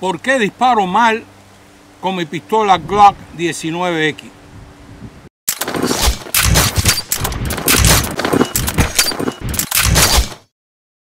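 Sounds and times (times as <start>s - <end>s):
sharp metallic clacks: 5.5s - 10.5s
loud gunfire-like bangs: 5.6s - 10.5s.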